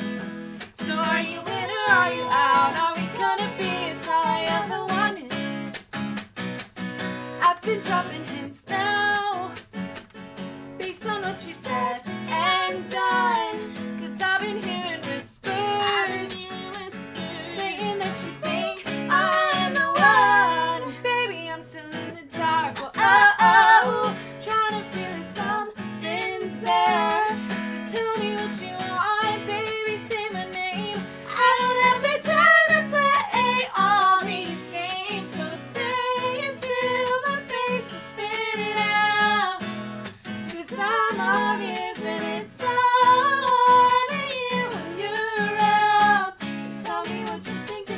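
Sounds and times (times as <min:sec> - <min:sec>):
acoustic guitar strumming: 0:00.0 - 0:47.9
woman singing: 0:00.6 - 0:05.5, 0:07.4 - 0:09.6, 0:10.8 - 0:39.8, 0:40.5 - 0:47.9
second woman singing: 0:00.8 - 0:05.4, 0:10.8 - 0:39.6, 0:40.5 - 0:47.9.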